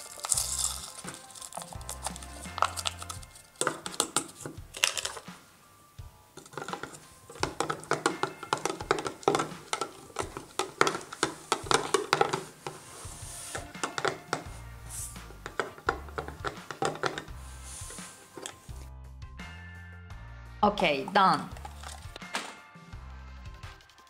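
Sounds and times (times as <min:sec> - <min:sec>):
spoon stirring in plastic cup: 0:00.0 - 0:05.3, 0:06.4 - 0:18.8, 0:21.0 - 0:22.2
background music: 0:00.0 - 0:24.0.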